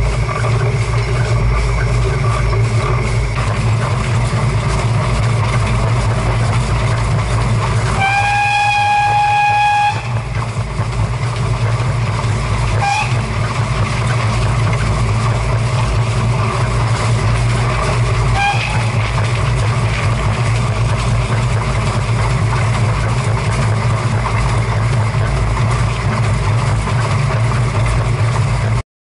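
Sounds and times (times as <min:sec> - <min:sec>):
steam locomotive rumbling: 0:00.0 - 0:28.8
steam whistle: 0:07.9 - 0:10.4, 0:12.7 - 0:13.3, 0:18.3 - 0:19.1.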